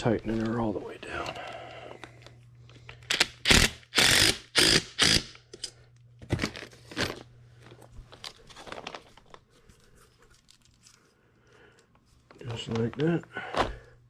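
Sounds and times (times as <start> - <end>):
impact driver bursts: 3.1 - 5.4.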